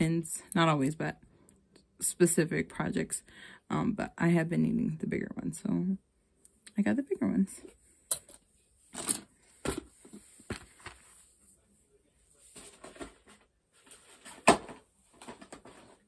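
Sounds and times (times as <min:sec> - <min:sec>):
knocks of objects handled: 0:09.0 - 0:11.1.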